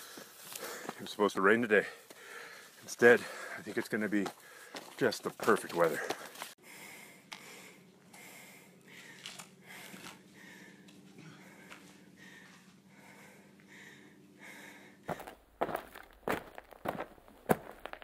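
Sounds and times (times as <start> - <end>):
person panting heavily: 0.0 - 1.0, 1.8 - 5.0, 5.9 - 15.4.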